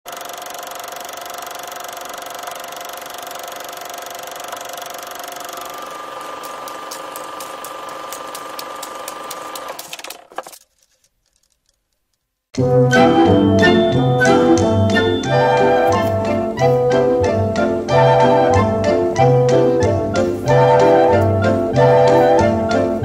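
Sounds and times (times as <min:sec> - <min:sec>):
film projector whirring: 0:00.0 - 0:10.6
projector clicking: 0:00.2 - 0:10.4
music: 0:12.6 - 0:23.0.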